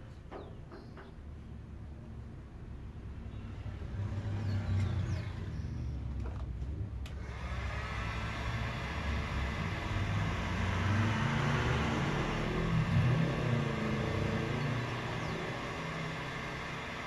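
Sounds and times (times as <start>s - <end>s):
heat gun fan blowing: 6.8s - 17.0s.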